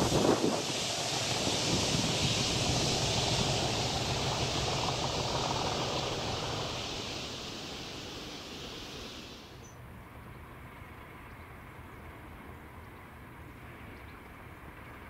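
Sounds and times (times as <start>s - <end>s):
wind noise on microphone: 0.0s - 9.3s
train rumbling on rails: 0.0s - 14.0s.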